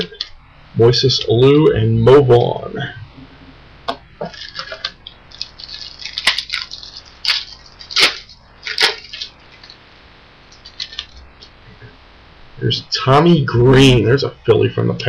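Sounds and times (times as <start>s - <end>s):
foil wrapper crinkling and tearing: 4.2s - 9.8s, 10.5s - 11.2s.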